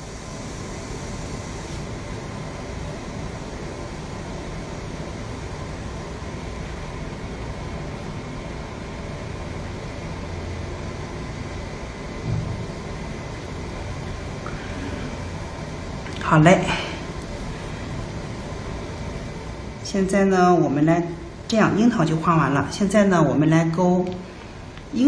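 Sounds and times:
steady background hum and hiss: 0.0 - 25.0
short low sound: 12.2 - 12.7.

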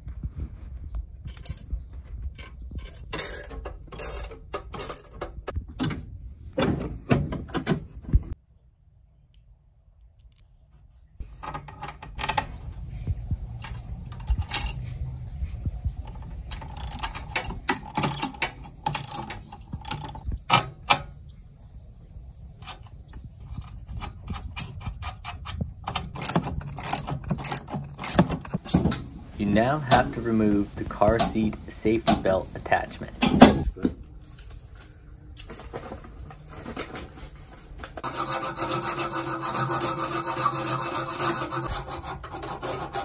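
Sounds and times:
metal bolts clinking: 2.4 - 5.4, 13.6 - 14.8, 16.0 - 21.1, 23.6 - 29.1
ratchet wrench clicking: 2.8 - 5.1, 16.1 - 20.2, 26.2 - 28.5.

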